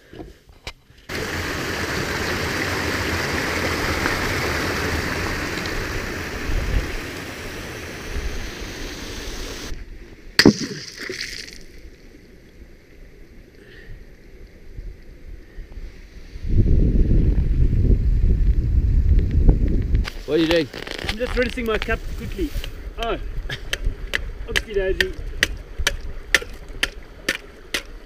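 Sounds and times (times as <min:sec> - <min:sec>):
waterfall rushing: 0:01.1 - 0:09.7
sharp knock: 0:10.4 - 0:11.0.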